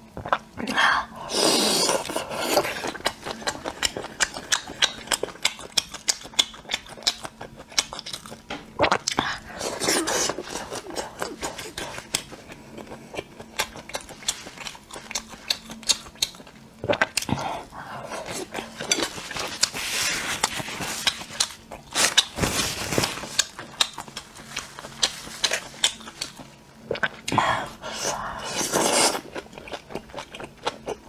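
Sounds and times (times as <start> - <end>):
chewing and lip smacking: 2.8 - 9.3, 10.3 - 17.4, 20.4 - 22.4, 23.3 - 27.4.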